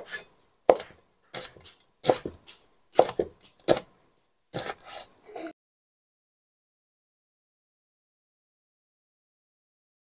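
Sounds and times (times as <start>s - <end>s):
cleaver slicing peppers: 0.0s - 3.9s, 4.6s - 5.1s.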